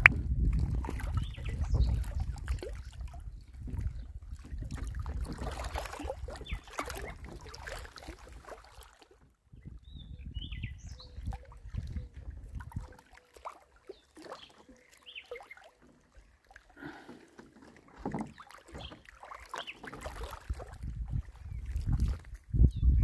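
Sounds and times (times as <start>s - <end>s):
wind rumbling on microphone: 0.0s - 8.5s, 9.4s - 13.0s, 20.0s - 23.0s
water lapping at rocks: 0.0s - 23.0s.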